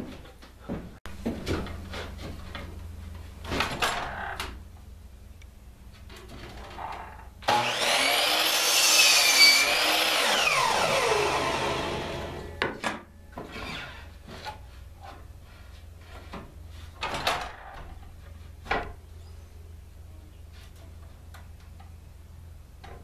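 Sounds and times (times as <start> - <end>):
miter saw motor whining: 7.5 - 12.6
saw cutting through board: 7.5 - 12.6.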